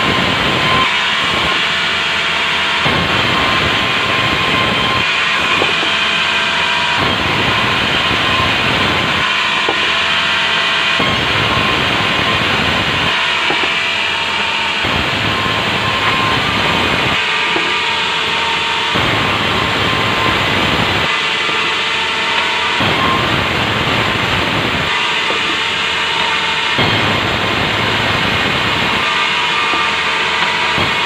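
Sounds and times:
band saw cutting wood: 0.0 - 31.0
machine running: 0.0 - 31.0.

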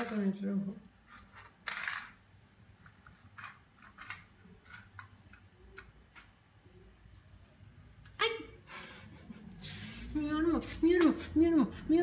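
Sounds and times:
cat pawing toys on tiles: 0.0 - 6.6, 9.6 - 12.0.

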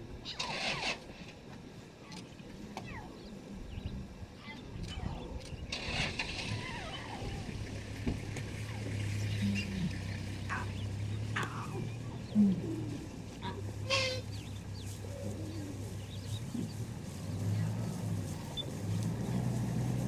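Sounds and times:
lion cubs mewing: 8.5 - 16.9.

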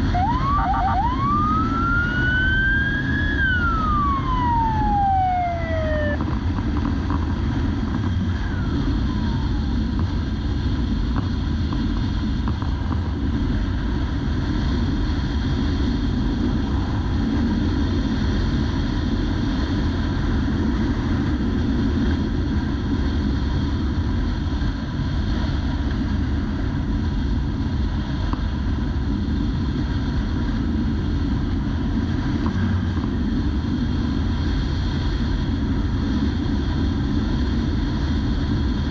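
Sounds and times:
siren winding down: 0.0 - 6.2, 8.3 - 9.8
motorcycle running at speed: 0.0 - 38.9
wind rushing over microphone: 0.0 - 38.9.

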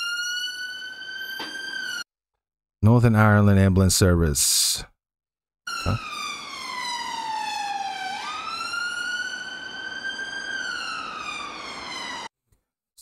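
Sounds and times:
ambulance siren wailing: 0.0 - 2.0, 5.7 - 12.3.

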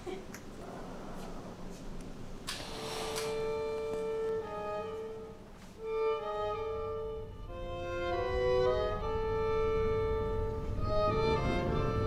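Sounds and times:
bowed strings playing slow notes: 3.5 - 12.0.

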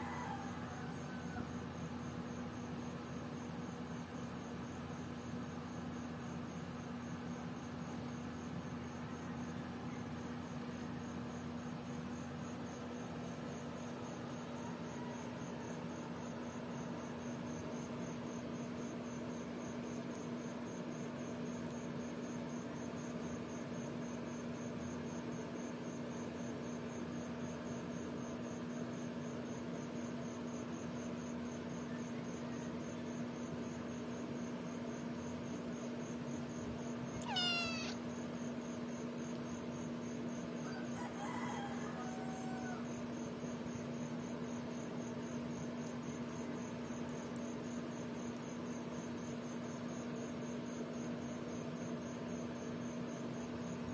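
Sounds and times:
background hiss and hum: 0.0 - 53.9
kitten mewing: 37.2 - 38.0.

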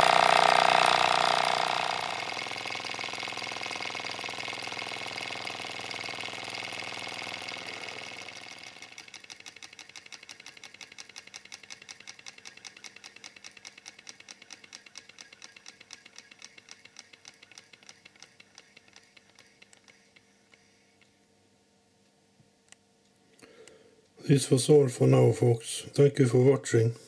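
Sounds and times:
stirling engine ticking: 0.0 - 19.2.

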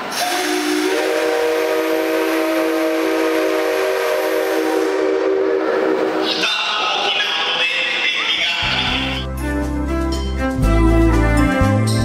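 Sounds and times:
steam locomotive whistle blast: 0.0 - 7.1
rushing steam hiss: 0.0 - 8.4.

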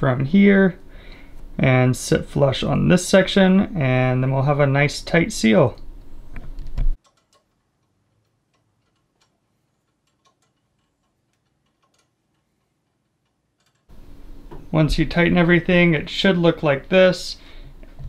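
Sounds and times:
wrench ticking on metal fitting: 7.0 - 13.9.

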